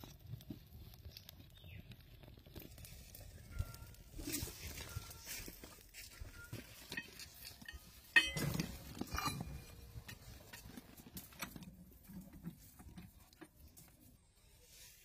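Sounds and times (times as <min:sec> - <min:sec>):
metal clinking and knocking: 0:06.3 - 0:11.7
sharp metallic clank: 0:07.0 - 0:09.8.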